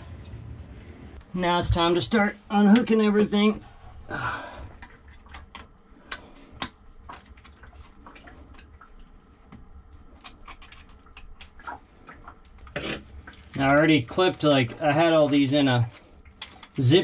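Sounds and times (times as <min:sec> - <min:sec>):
low steady rumble: 0:00.0 - 0:17.0
small clicks and knocks: 0:09.5 - 0:11.7.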